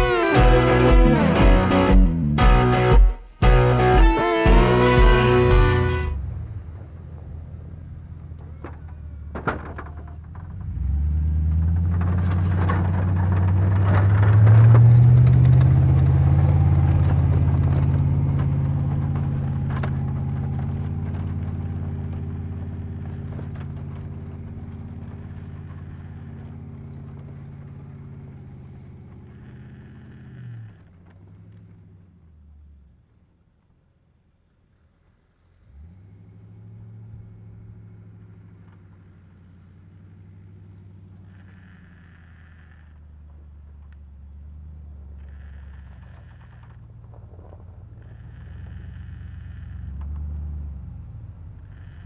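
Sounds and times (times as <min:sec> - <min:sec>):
pickup engine pulling hard: 0:03.6 - 0:32.2.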